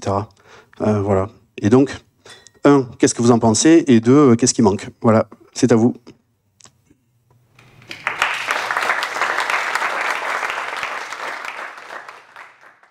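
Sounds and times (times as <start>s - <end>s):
audience applauding: 7.6s - 12.9s.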